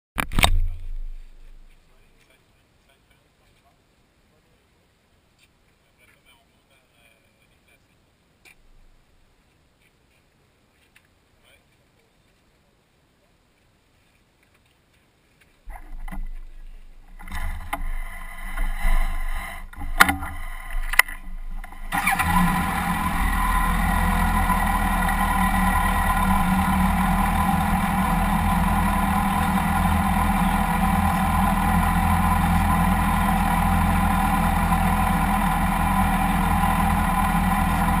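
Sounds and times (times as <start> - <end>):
motorcycle engine idling: 15.7 - 38.0
knocks and sharp clicks: 19.7 - 21.8.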